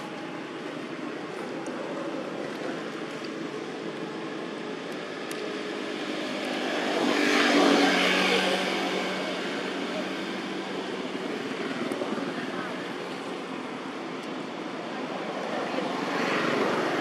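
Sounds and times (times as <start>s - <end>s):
engine passing by: 1.9s - 13.4s, 15.0s - 17.0s.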